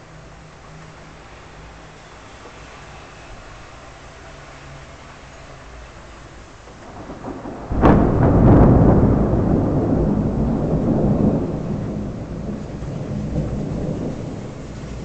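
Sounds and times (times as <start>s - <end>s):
thunder rumbling: 6.7s - 15.0s
thunder crack: 6.8s - 15.0s.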